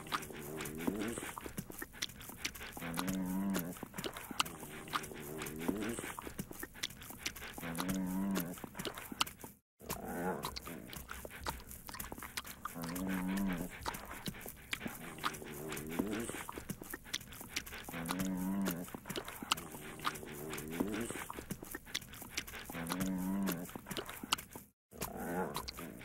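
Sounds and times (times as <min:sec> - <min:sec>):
puppy licking smacks: 0:00.0 - 0:09.6, 0:10.4 - 0:24.7
puppy moaning groans: 0:17.8 - 0:21.4.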